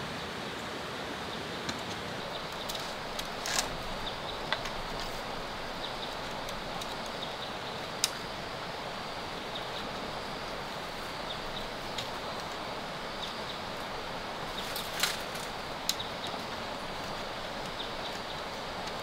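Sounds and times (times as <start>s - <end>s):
steady background hiss: 0.0s - 19.0s
bamboo strips clicking: 2.4s - 5.2s, 6.0s - 7.3s, 7.9s - 8.3s, 14.6s - 19.0s.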